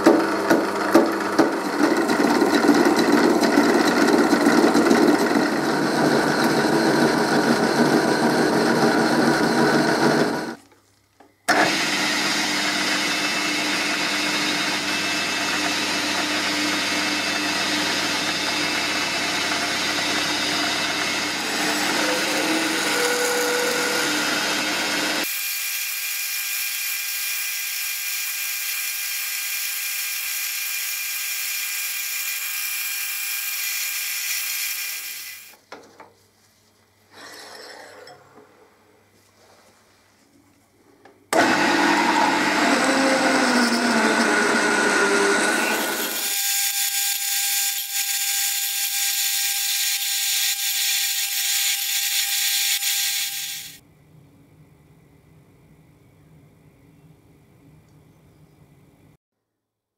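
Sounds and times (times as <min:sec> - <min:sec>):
metal lathe running: 0:00.4 - 0:10.6, 0:11.5 - 0:25.3, 0:41.4 - 0:53.8.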